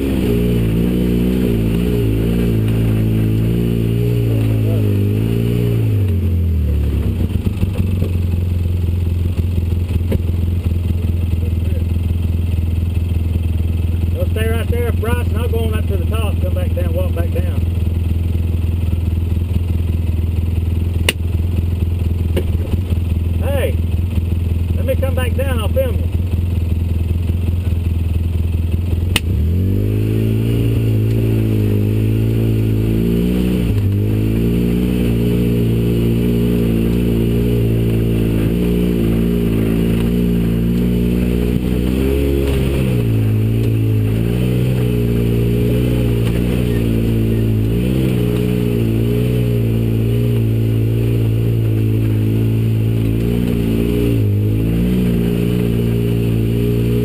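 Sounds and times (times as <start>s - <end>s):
off-road vehicle engine running: 0.0s - 57.0s
sharp click: 29.1s - 29.4s.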